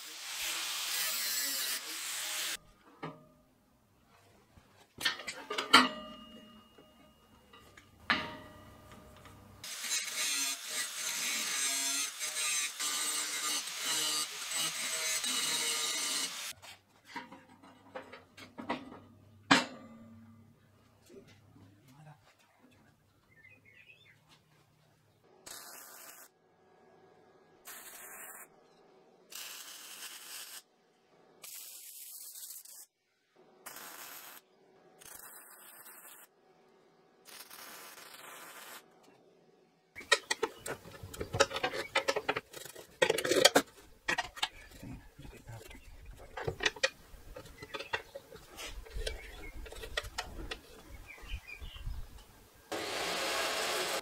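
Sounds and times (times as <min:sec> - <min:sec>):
welder crackling hiss: 0:00.0 - 0:02.6, 0:27.7 - 0:28.5, 0:29.3 - 0:30.6, 0:33.7 - 0:34.4, 0:37.3 - 0:38.8
metal knocks and clicks: 0:40.0 - 0:50.8.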